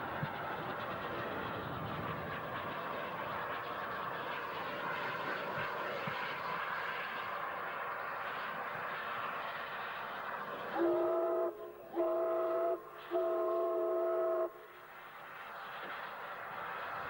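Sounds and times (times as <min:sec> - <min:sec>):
locomotive passing rushing noise: 0:00.0 - 0:10.8
steam locomotive whistle blasts: 0:10.7 - 0:14.9.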